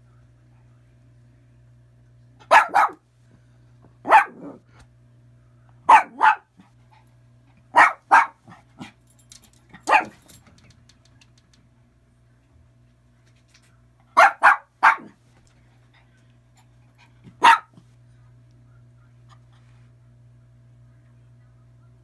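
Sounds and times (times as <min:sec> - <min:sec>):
small dog barking: 0:02.4 - 0:03.0, 0:04.0 - 0:04.6, 0:05.8 - 0:06.6, 0:07.7 - 0:09.0, 0:09.8 - 0:10.3, 0:14.2 - 0:15.2, 0:17.3 - 0:17.8.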